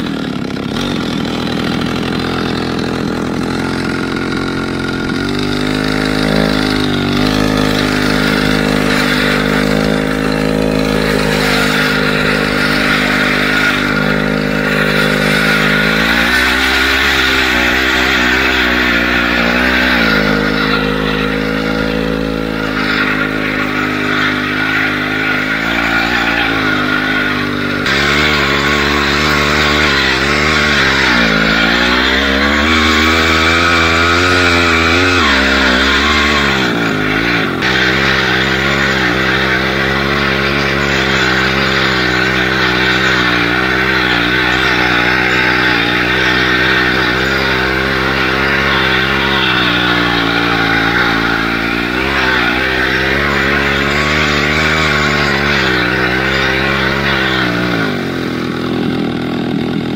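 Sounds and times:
chainsaw engine revving: 0.0 - 59.9.

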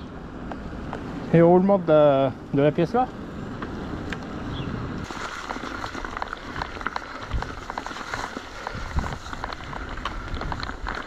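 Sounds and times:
bike tyres on rough trail: 0.0 - 11.0
bike clicks and rattles: 5.0 - 11.0.

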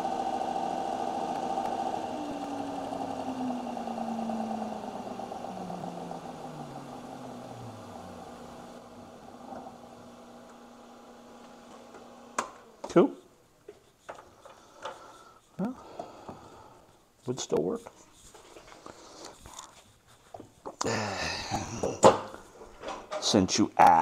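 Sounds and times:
electric motor humming: 0.0 - 12.9.

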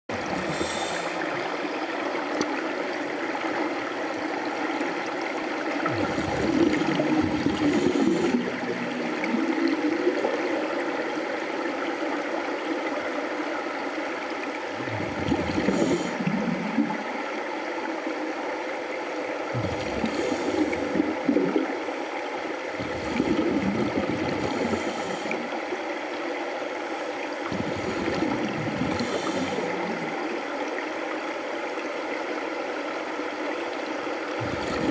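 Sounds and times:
exhaled bubbles gurgling: 0.1 - 18.2, 19.4 - 32.9, 33.8 - 34.9
underwater water hiss: 0.2 - 1.7, 5.6 - 10.8, 14.8 - 17.0, 19.5 - 21.8, 22.6 - 25.8, 26.8 - 30.4, 34.4 - 34.9.

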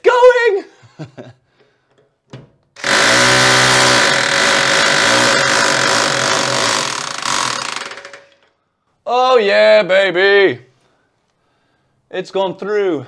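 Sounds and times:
rotary hammer rattling: 2.8 - 8.5.

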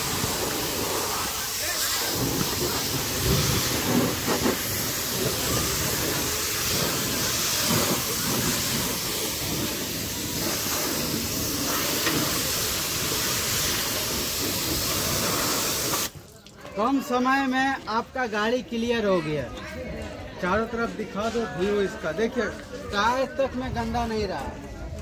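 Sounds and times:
pressure washer jet spraying: 0.0 - 16.2.

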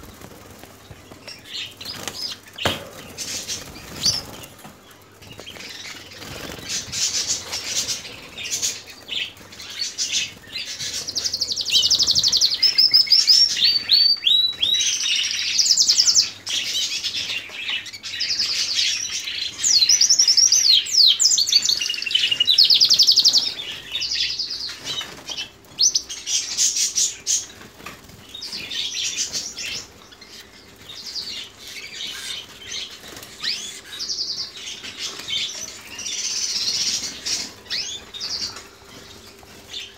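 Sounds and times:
wings flapping: 0.0 - 8.8
canaries singing trills: 0.0 - 39.9.

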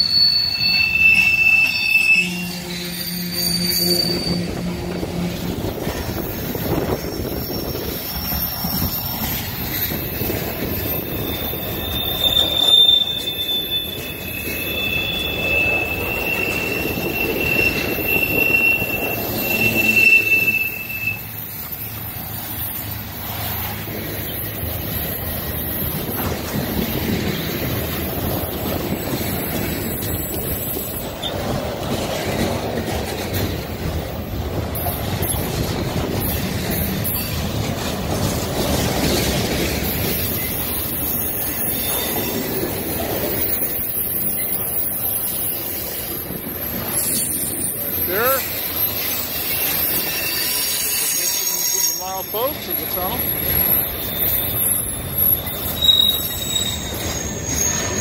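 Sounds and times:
high-pitched wheel squeal: 0.0 - 27.4, 39.8 - 58.0
train wheels rumbling on rail: 0.0 - 58.0.

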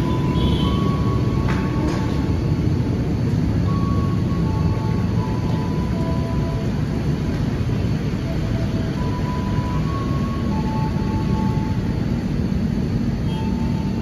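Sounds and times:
electric train rumbling: 0.0 - 14.0.

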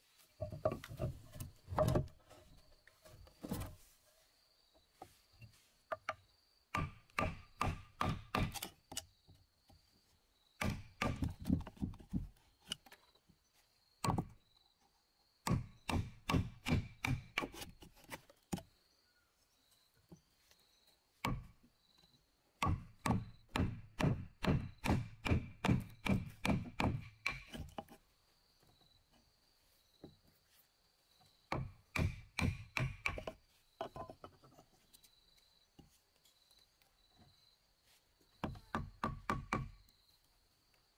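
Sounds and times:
mallet striking wood chisel: 6.8 - 8.6, 31.5 - 33.3, 38.7 - 39.7.

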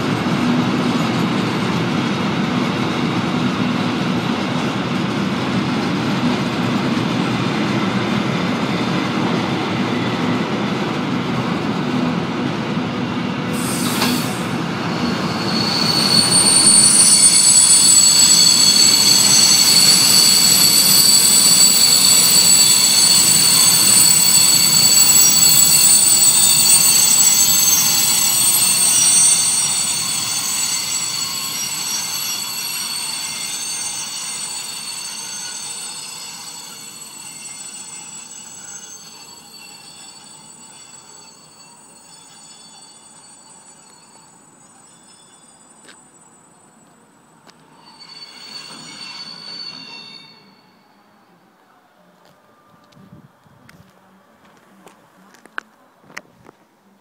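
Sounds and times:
train wheels rumbling on rails: 0.0 - 46.1
high-pitched wheel squeal: 13.6 - 51.1.

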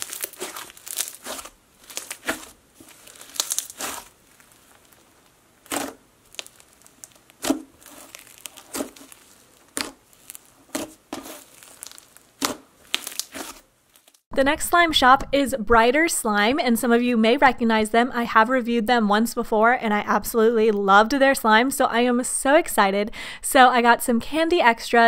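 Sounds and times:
slime crackling and popping: 0.0 - 14.3.

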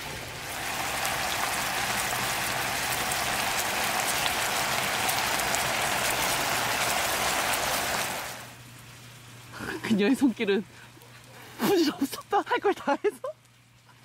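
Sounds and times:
meat sizzling in a pan: 0.4 - 8.5.

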